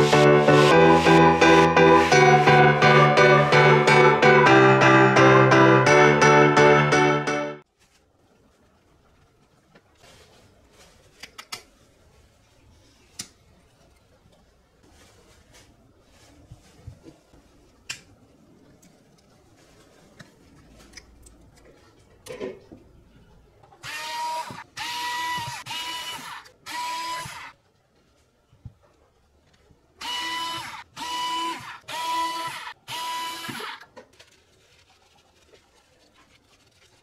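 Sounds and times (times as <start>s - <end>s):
small power tool motor whirring: 23.8s - 27.5s, 30.0s - 33.8s.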